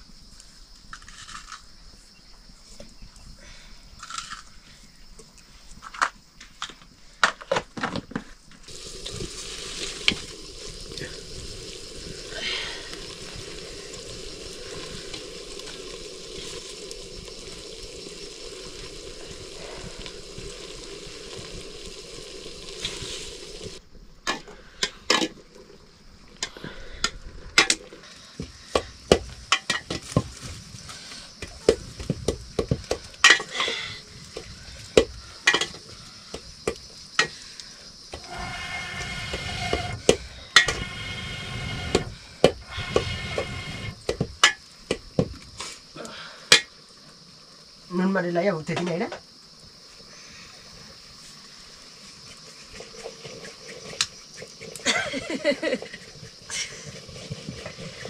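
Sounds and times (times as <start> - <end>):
food sizzling in a pan: 8.6 - 23.8, 28.2 - 58.0.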